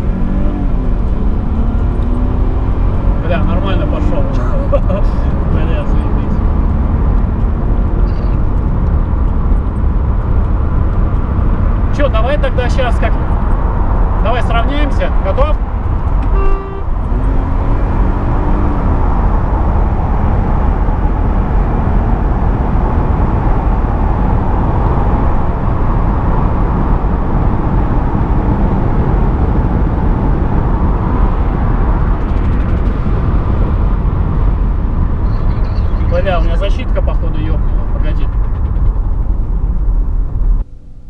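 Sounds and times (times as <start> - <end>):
car road and wind noise: 0.0 - 41.0
faint engine note: 16.3 - 17.1.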